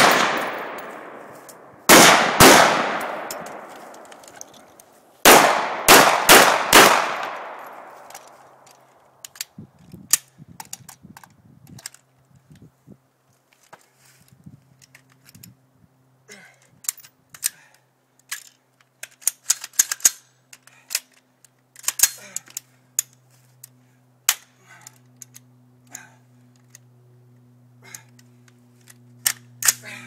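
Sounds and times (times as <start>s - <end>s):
rifle metallic clicks and clacks: 0.0s - 12.6s, 16.8s - 25.5s, 27.9s - 29.8s.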